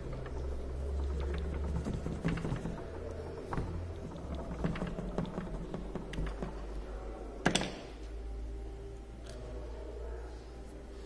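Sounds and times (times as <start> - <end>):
clicks and taps on plastic fan: 0.0 - 6.8
low steady hum: 0.0 - 11.0.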